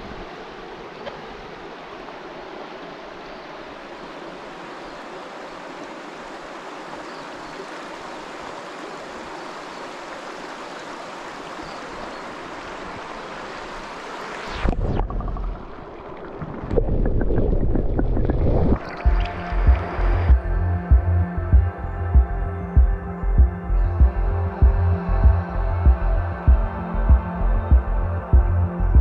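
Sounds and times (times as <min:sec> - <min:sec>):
stream babbling over stones: 0:00.0 - 0:20.3
muffled underwater rumble: 0:14.5 - 0:29.0.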